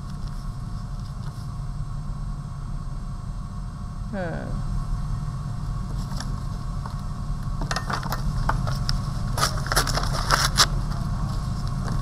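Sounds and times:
low hum: 0.0s - 12.0s
newspaper crinkling and rustling: 8.6s - 11.9s.

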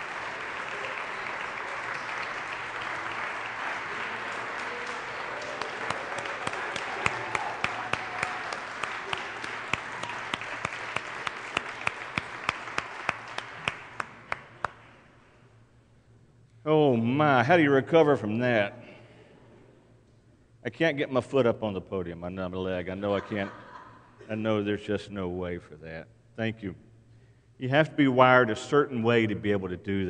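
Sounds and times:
audience applauding: 0.0s - 15.0s
rhythmic clapping: 0.0s - 15.2s.

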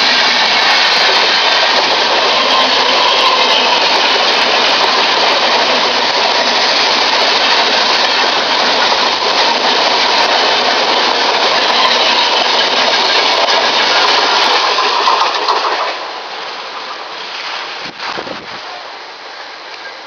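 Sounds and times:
train wheels rushing on rails: 0.0s - 20.0s.

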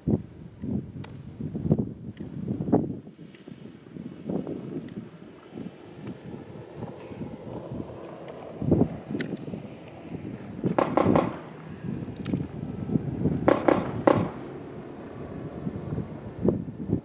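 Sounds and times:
gunshots: 10.7s - 11.5s, 13.4s - 14.4s.

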